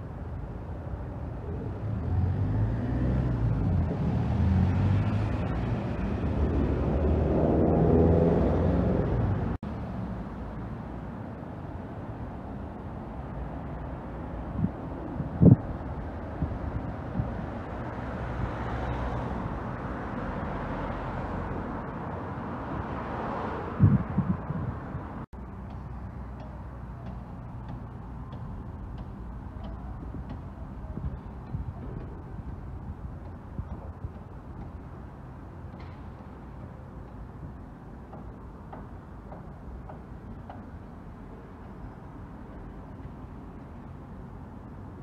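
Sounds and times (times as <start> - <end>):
passing vehicles rumbling: 0.0 - 45.0
road noise: 0.0 - 45.0
bus engine passing: 1.6 - 10.4.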